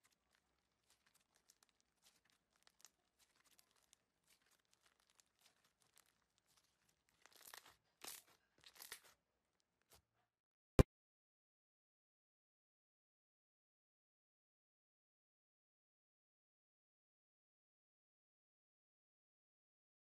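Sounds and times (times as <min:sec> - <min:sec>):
slime crackling and popping: 0:00.0 - 0:09.2.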